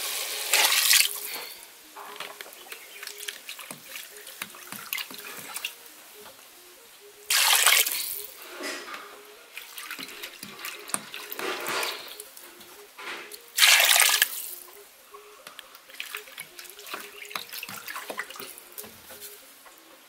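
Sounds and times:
water pouring into metal pot: 0.0s - 1.4s, 7.3s - 8.3s, 13.6s - 14.6s.

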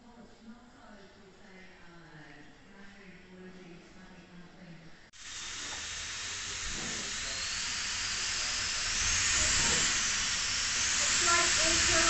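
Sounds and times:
steam hissing from locomotive: 5.2s - 12.0s.

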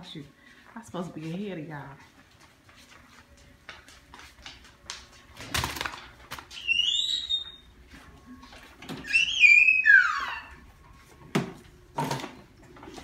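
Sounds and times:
child squealing: 9.0s - 10.6s.

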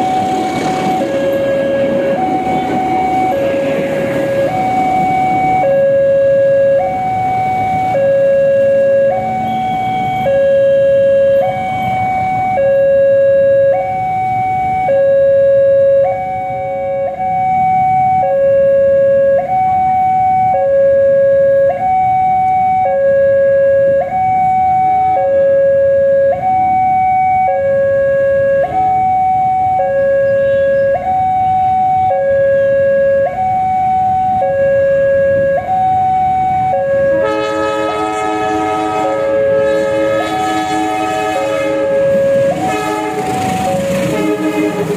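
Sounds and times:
train rumble: 0.0s - 8.0s, 37.0s - 44.9s
locomotive horn: 0.0s - 13.8s, 24.8s - 26.5s, 29.6s - 33.4s, 34.1s - 44.9s
two-tone crossing alarm: 0.0s - 44.9s.

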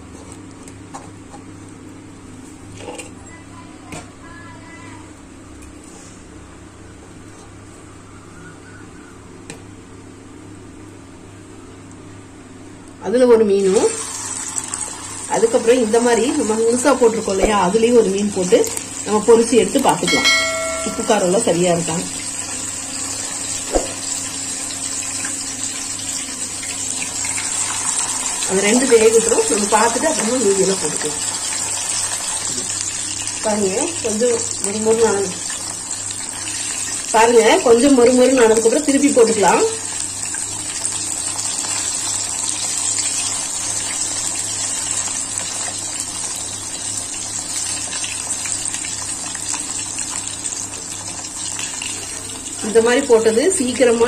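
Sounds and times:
hot oil sizzling: 13.5s - 54.0s.

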